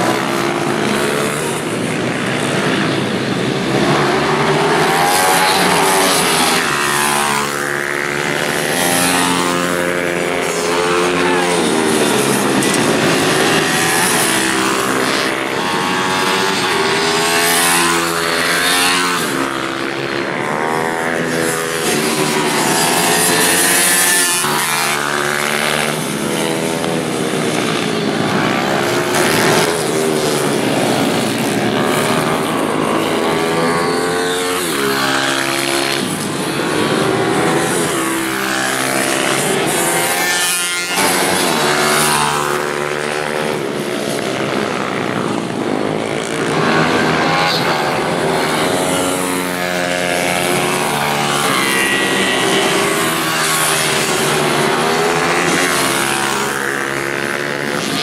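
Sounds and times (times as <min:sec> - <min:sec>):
minibike engines racing: 0:00.0 - 0:58.0.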